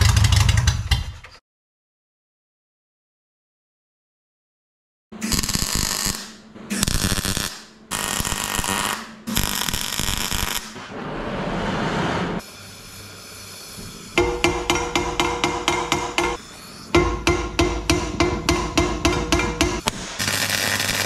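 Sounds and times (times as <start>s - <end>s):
welder crackling: 5.3s - 10.8s, 17.0s - 21.0s
hammer blow ringing: 14.2s - 16.4s.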